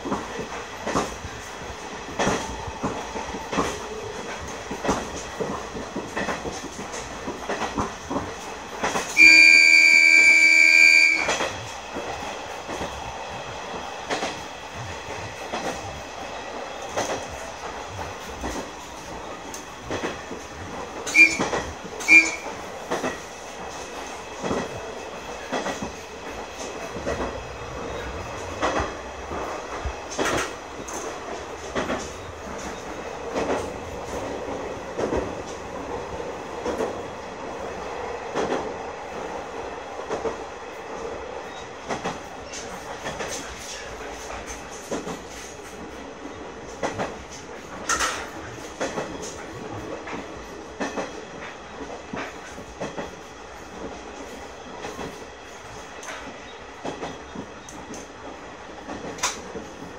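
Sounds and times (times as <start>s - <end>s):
diesel railcar running: 0.0s - 59.9s
train horn blasts: 9.1s - 11.5s, 21.1s - 22.6s
wheels clacking over rail joints: 13.6s - 37.1s, 41.4s - 58.2s.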